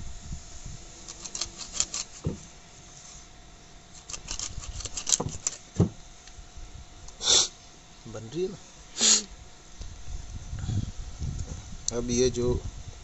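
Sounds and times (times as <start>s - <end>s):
dull thump: 5.2s - 6.0s.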